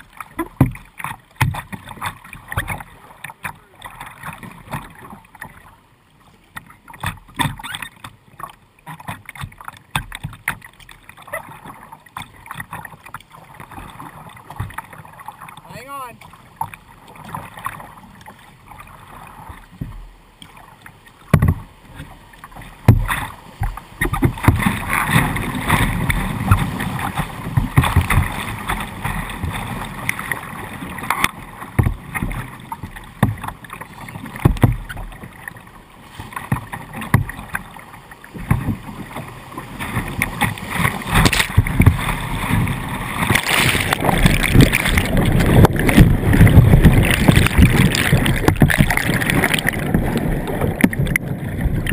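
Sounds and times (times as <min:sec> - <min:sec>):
deep underwater churning: 0:00.0 - 0:51.9
sharp knocks on kayak: 0:01.4 - 0:01.8, 0:21.3 - 0:21.7, 0:22.8 - 0:26.6, 0:34.4 - 0:35.0, 0:36.5 - 0:37.4, 0:40.0 - 0:42.0, 0:43.2 - 0:50.1
whitewater rapids rushing and splashing: 0:15.2 - 0:16.2, 0:35.0 - 0:51.9.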